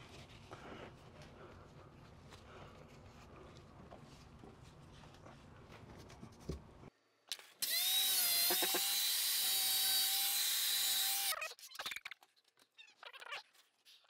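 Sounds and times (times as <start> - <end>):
power tool whining: 7.6 - 11.3.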